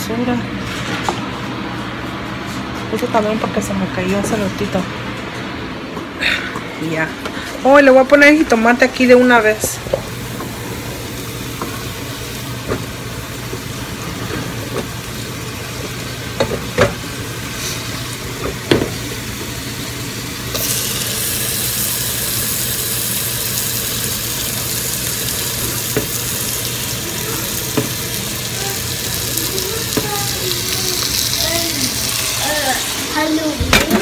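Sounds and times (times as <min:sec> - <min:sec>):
food sizzling in pot: 0:08.9 - 0:34.0
loud steady hiss: 0:19.0 - 0:33.6.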